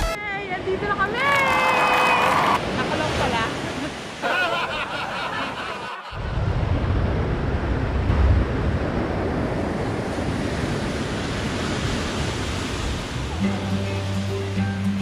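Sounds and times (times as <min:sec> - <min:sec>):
waves washing onto beach: 0:00.4 - 0:15.0
wind buffeting microphone: 0:06.2 - 0:13.4.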